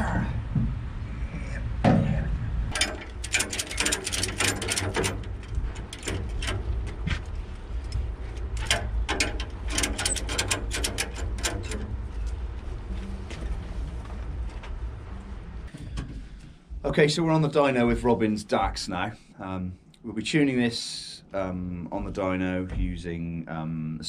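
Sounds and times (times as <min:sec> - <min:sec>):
steady low hum: 0:00.0 - 0:24.0
ratchet strap clicking: 0:02.8 - 0:11.9.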